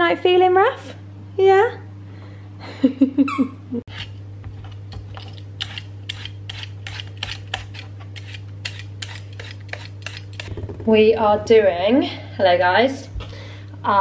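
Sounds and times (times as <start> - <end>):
steady low hum: 0.0 - 14.0
peeler scraping potato skin: 3.9 - 10.6.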